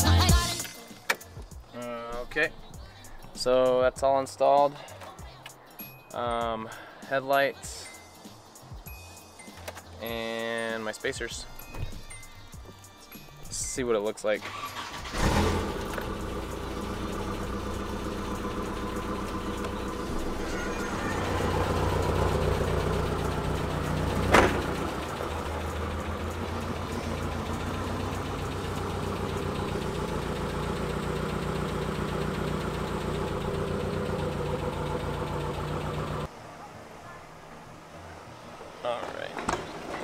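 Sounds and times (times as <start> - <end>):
car engine idling: 14.5 - 36.3
car door slamming: 24.1 - 25.0.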